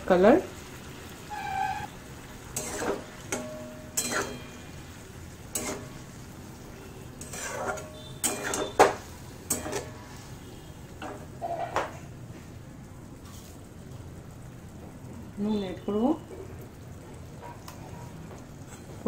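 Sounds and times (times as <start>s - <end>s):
metal spatula scraping metal pan: 2.5s - 4.8s, 5.5s - 6.0s, 7.2s - 10.0s.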